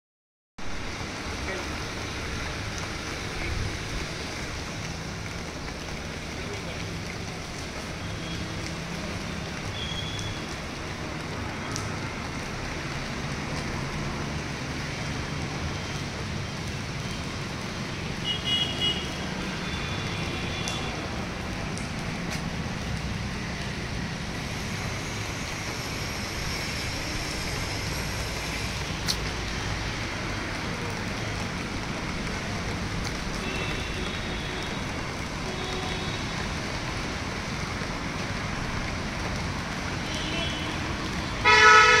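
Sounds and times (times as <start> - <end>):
rain: 0.6 - 42.0
street traffic: 0.6 - 42.0
car horns honking: 41.4 - 42.0.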